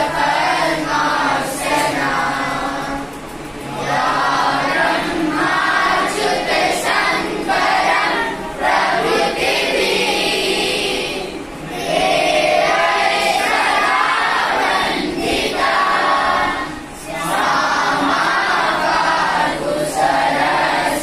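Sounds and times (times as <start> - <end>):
boys singing in unison: 0.0 - 21.0.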